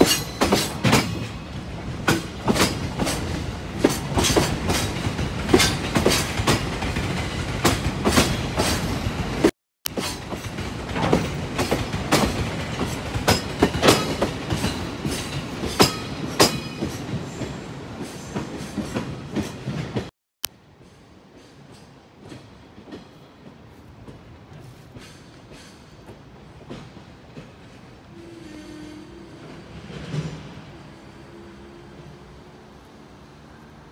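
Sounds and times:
train wheels clacking over rail joints: 0.0s - 20.1s
freight train rolling past: 0.0s - 33.9s.

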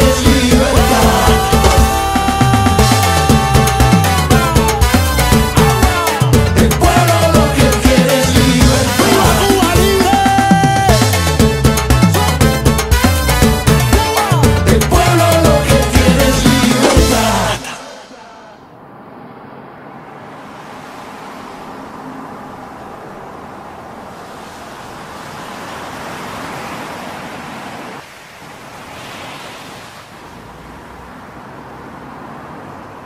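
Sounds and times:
surf washing against seawall: 20.1s - 31.2s.

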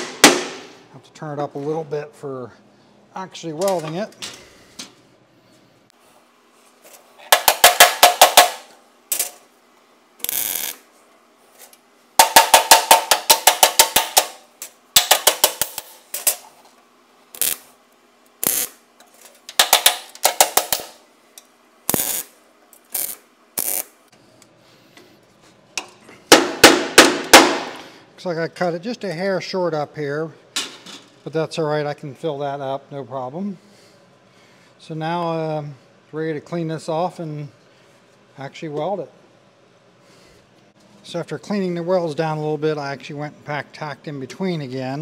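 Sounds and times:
hammer striking steel panel: 0.0s - 0.8s, 7.3s - 8.7s, 12.2s - 14.4s, 26.3s - 27.8s.

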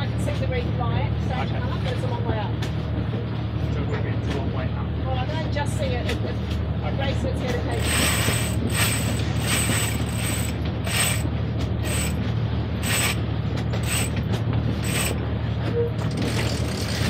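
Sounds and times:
steady low hum: 6.4s - 15.7s
winch ratchet clicking: 7.7s - 12.2s, 12.8s - 14.2s, 14.8s - 15.2s.

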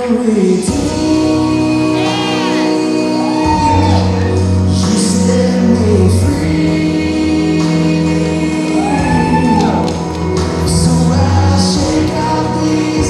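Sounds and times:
person singing worship song: 0.0s - 13.0s
sustained backing chords: 0.0s - 13.0s.

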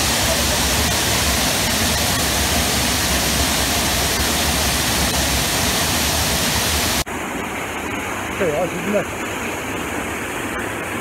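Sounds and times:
waterfall rushing: 0.0s - 7.0s.

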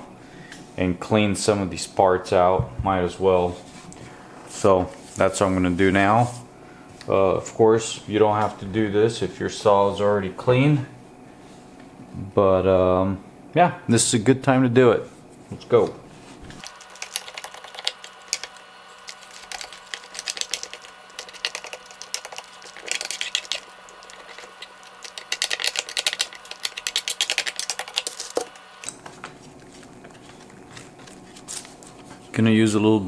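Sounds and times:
small clicks and scratches: 16.6s - 32.2s.

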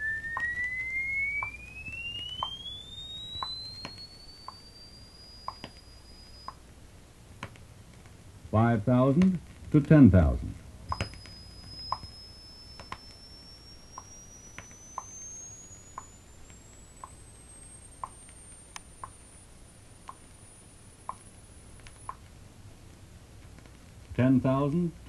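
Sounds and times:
rising test tone sweep: 0.0s - 6.6s, 10.1s - 22.2s.

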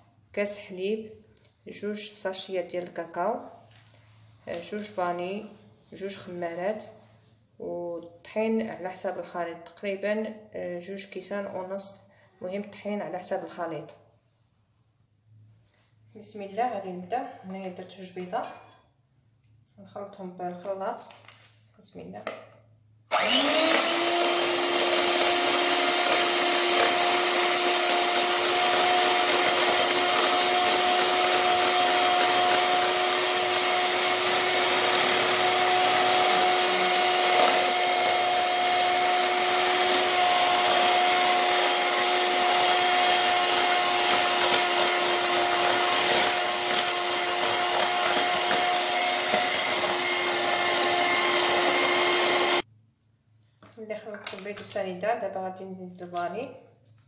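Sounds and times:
electric hand mixer whirring: 23.1s - 52.6s.

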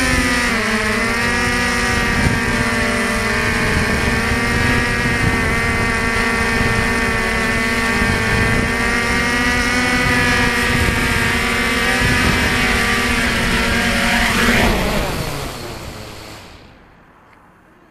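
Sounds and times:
drone motors whining: 0.0s - 17.8s.

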